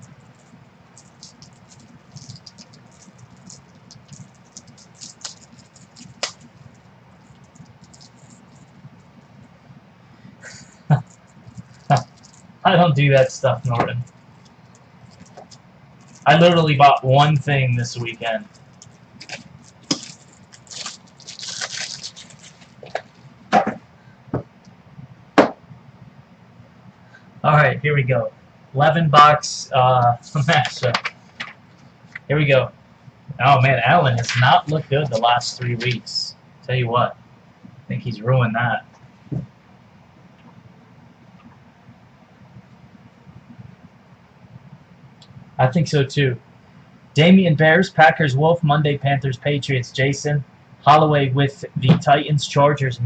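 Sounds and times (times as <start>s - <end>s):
handling rustle: 0.0s - 9.2s, 13.6s - 16.6s, 17.7s - 23.3s
faint low hum: 0.0s - 53.0s.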